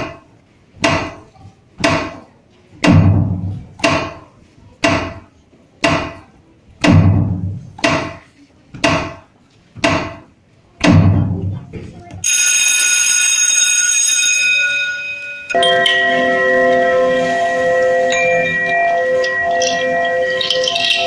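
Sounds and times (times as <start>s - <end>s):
dance music drum beats: 2.8s - 4.2s, 6.8s - 8.2s, 10.8s - 11.6s.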